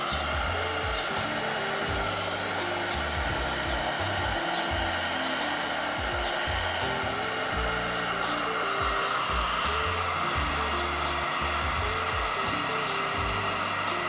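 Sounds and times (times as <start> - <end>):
background music: 0.0 - 14.0
heat gun blowing: 0.0 - 14.0.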